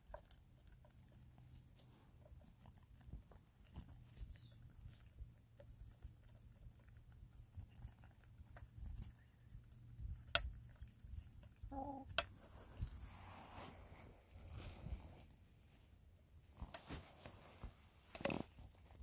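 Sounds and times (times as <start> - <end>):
hens pecking: 0.0 - 19.0
hen clucking: 11.6 - 12.3.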